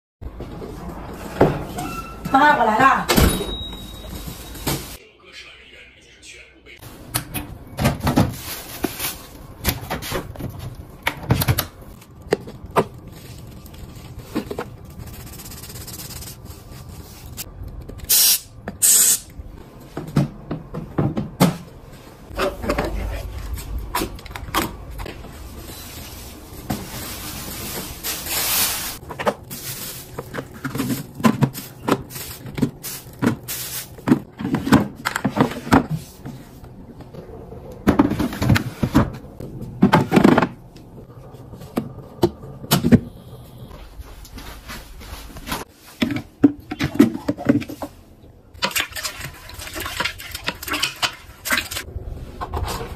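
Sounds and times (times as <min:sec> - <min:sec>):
plastic rustling: 0:08.1 - 0:11.0, 0:11.8 - 0:17.5, 0:22.5 - 0:34.7.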